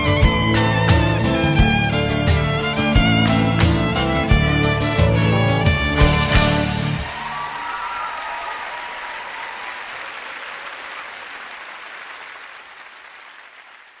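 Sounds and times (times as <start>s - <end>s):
music: 0.0s - 7.6s
audience applause: 0.0s - 14.0s.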